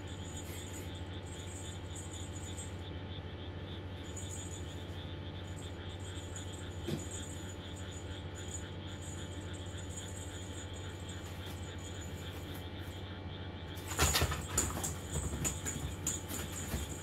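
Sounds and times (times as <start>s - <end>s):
electric fan humming: 0.0s - 17.0s
knocks and rustles: 13.8s - 17.0s.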